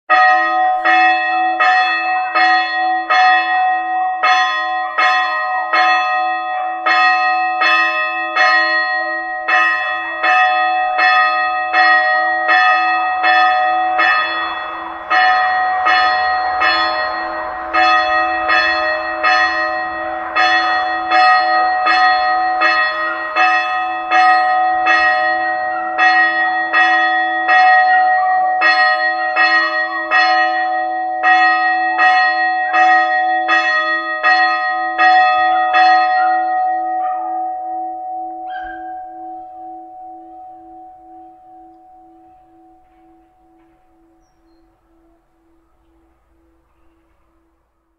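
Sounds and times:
church bells tolling: 0.1s - 47.9s.

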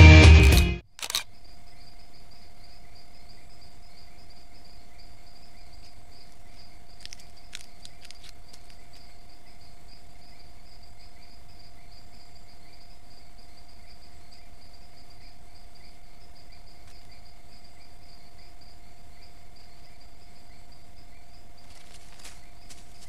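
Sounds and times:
sharp clicks: 0.4s - 1.3s
insects trilling: 0.9s - 23.0s
low pulsing insect buzz: 0.9s - 23.0s.

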